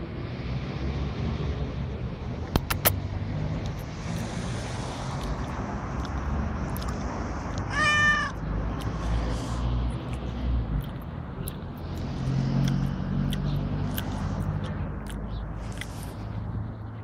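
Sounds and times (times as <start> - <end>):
cat meowing: 7.7 - 8.5.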